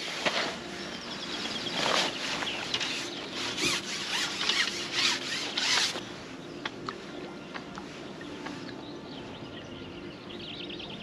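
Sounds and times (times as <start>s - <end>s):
fishing pole sections rasping: 1.7s - 6.0s.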